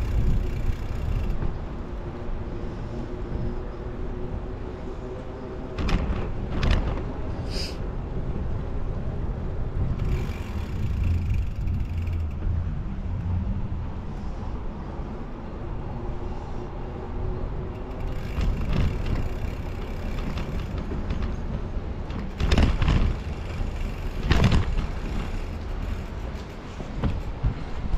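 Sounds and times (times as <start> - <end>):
wind and road noise rumble: 0.0 - 27.9
sharp knocks and rattles: 17.8 - 27.9.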